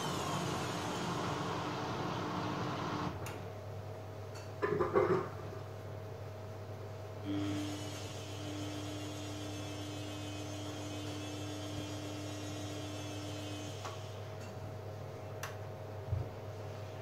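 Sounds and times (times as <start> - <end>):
washing machine humming: 0.0 - 3.8.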